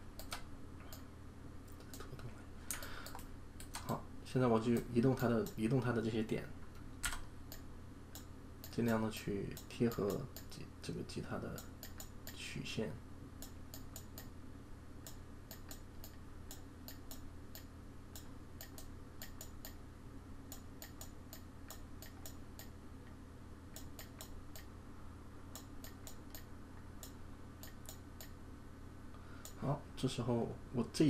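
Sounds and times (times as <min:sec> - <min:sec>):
faint low hum: 0:00.0 - 0:31.0
computer mouse clicks: 0:00.2 - 0:01.1, 0:01.7 - 0:04.0, 0:07.0 - 0:10.6, 0:11.5 - 0:12.4, 0:13.4 - 0:14.4, 0:15.0 - 0:19.8, 0:20.5 - 0:22.8, 0:23.7 - 0:24.7, 0:25.5 - 0:28.4.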